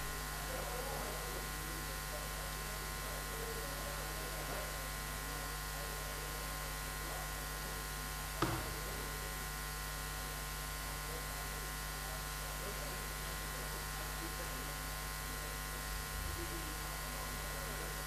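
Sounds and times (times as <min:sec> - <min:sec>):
buzzy electrical mains hum: 0:00.0 - 0:18.0
short knock: 0:08.4 - 0:08.9.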